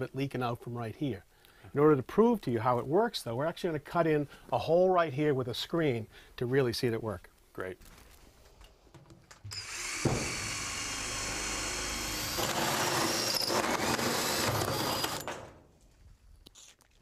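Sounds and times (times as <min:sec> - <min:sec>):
drill cutting sheet metal: 0:09.5 - 0:15.5.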